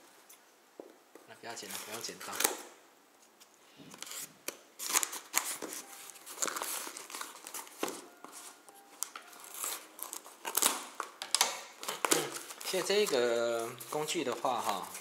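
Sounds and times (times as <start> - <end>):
tape torn off with crinkling: 3.3 - 8.0, 9.0 - 15.0.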